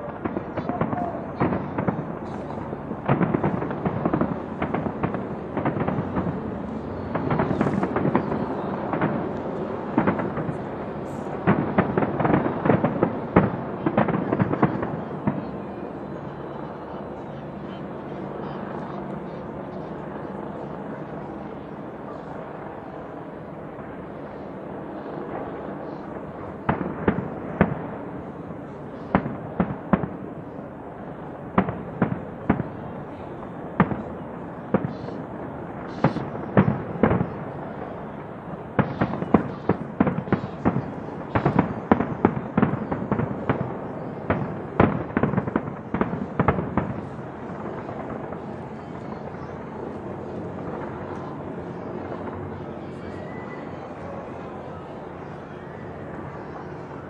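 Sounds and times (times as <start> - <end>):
fireworks bangs: 0.0 - 17.8, 25.3 - 53.1
steady background noise: 0.0 - 57.0.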